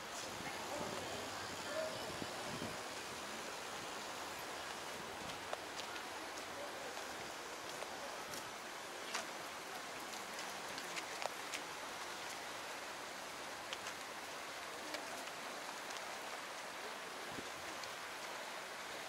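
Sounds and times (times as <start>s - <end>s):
stream water rushing: 0.0s - 19.0s.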